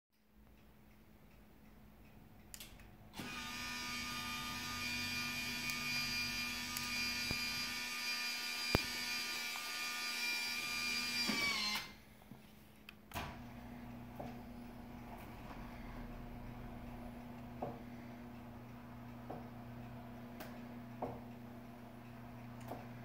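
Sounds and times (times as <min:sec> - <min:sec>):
electric motor whine: 0:03.2 - 0:12.0.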